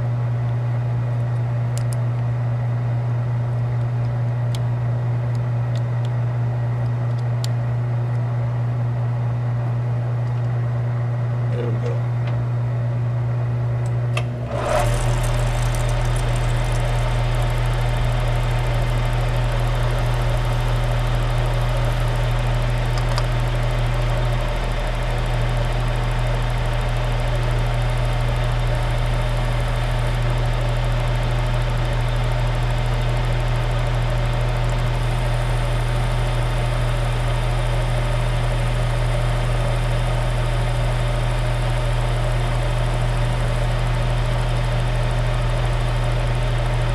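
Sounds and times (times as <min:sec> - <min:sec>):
low motor hum: 0:00.0 - 0:46.9
metal lathe running: 0:14.3 - 0:46.9.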